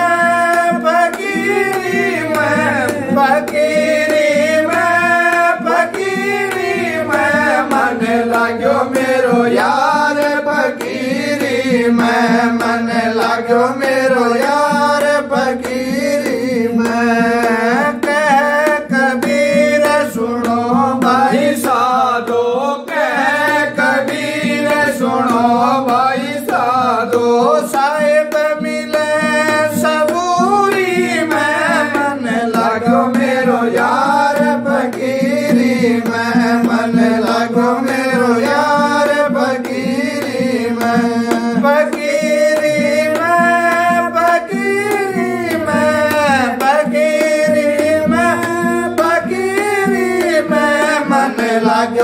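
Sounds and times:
man singing devotional song: 0.0s - 52.0s
plucked rhythmic accompaniment: 0.0s - 52.0s.

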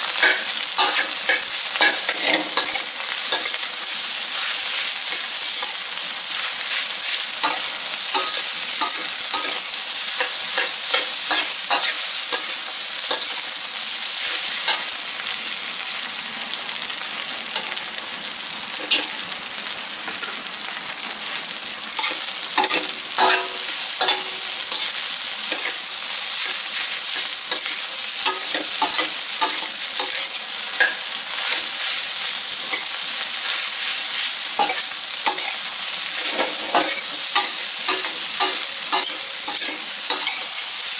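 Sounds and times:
rice sizzling in a wok: 0.0s - 40.9s
metal spatula scraping a wok: 0.2s - 13.5s, 22.0s - 25.8s, 26.4s - 40.8s.

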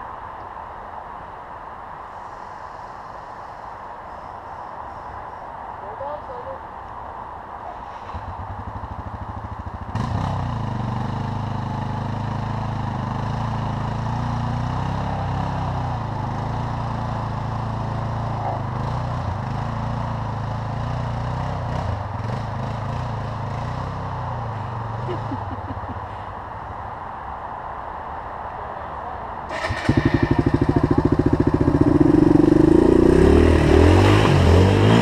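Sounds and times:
motorcycle engine running: 8.2s - 25.8s, 29.5s - 35.0s.

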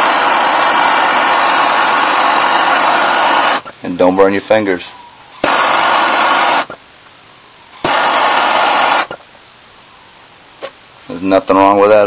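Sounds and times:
propane torch hissing: 0.0s - 3.8s, 5.3s - 9.4s.

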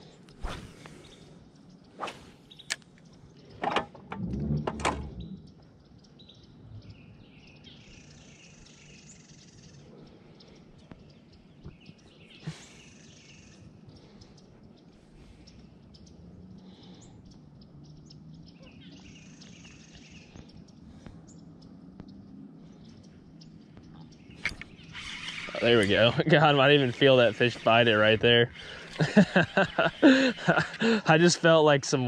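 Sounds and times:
faint bird chirps: 0.0s - 3.6s, 4.2s - 32.0s
fishing reel clicks: 24.5s - 25.7s.

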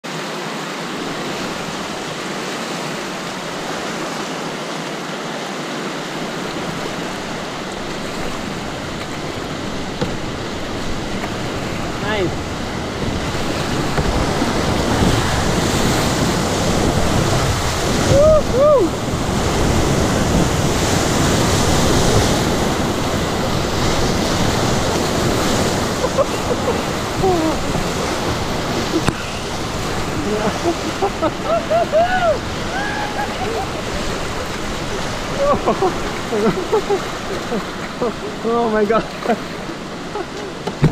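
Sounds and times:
whitewater rapids rushing: 0.0s - 40.9s.

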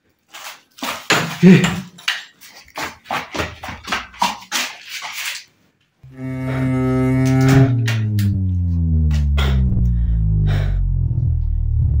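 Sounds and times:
low droning music: 6.0s - 12.0s.

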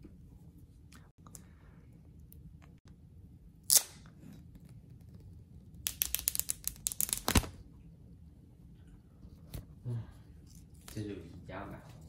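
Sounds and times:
packaging sharp crack: 5.8s - 7.6s.

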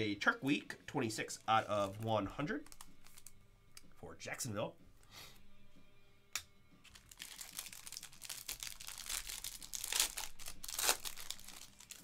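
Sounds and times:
plastic bag crinkling: 6.9s - 12.0s.

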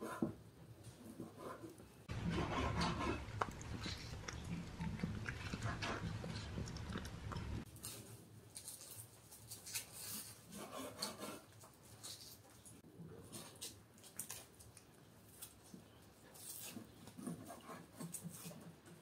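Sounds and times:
cats chewing raw meat: 2.1s - 8.0s.

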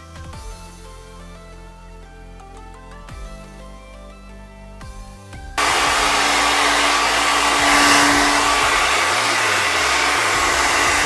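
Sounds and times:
hair dryer running: 5.6s - 11.0s.

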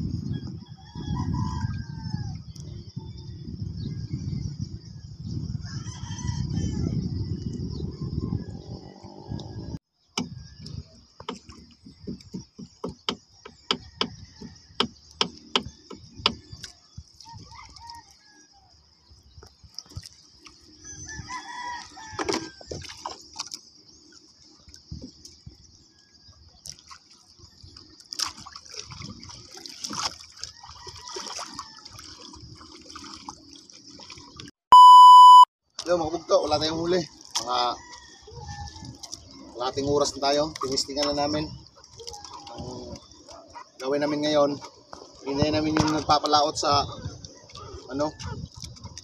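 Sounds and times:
faint water: 0.0s - 49.0s
rooster crowing: 0.7s - 2.4s, 5.6s - 7.1s, 21.0s - 22.6s
taps and knocks in wooden boat: 10.2s - 16.7s.

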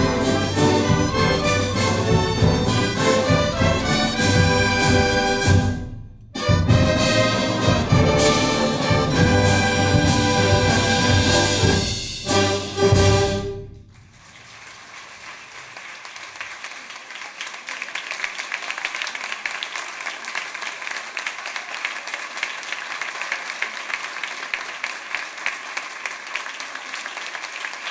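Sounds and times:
audience applauding: 13.9s - 27.9s.

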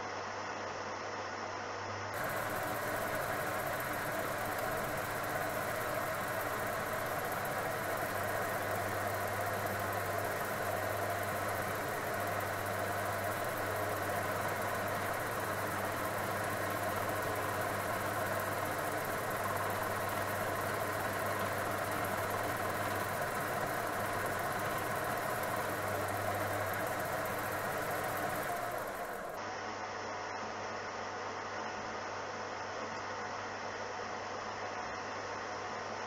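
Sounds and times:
low motor hum: 2.2s - 29.4s.

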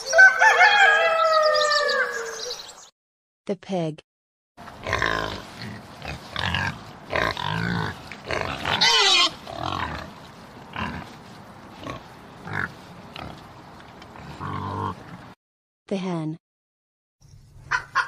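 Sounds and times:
pig grunting and squealing: 4.7s - 15.4s.

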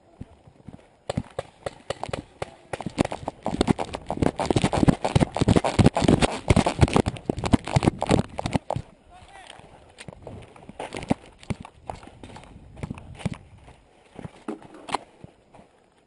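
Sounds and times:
running footsteps on gravel: 0.0s - 16.0s
gear rattling: 2.8s - 8.8s.

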